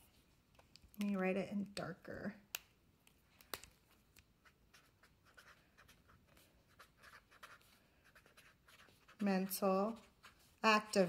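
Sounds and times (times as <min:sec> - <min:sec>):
pen scratching on paper: 0:04.4 - 0:11.0.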